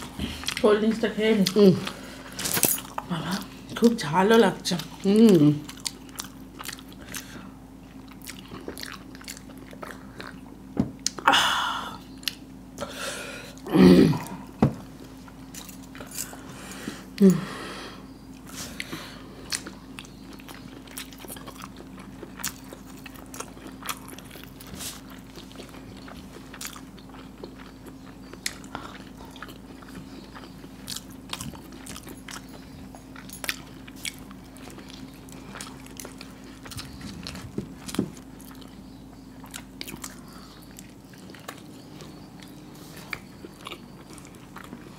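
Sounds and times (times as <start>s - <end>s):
chewing and biting food: 0.0s - 11.3s, 18.2s - 44.9s
steady low hum: 0.0s - 44.9s.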